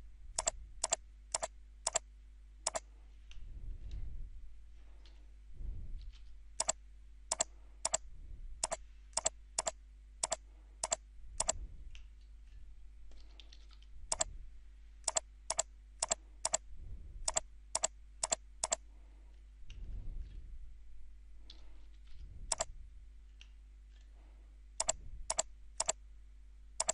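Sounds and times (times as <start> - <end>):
computer mouse and keyboard clicks: 0.4 - 2.0, 6.6 - 8.0, 8.6 - 12.1, 13.1 - 14.3, 15.1 - 16.6, 17.3 - 18.8, 21.4 - 22.7, 24.8 - 26.0.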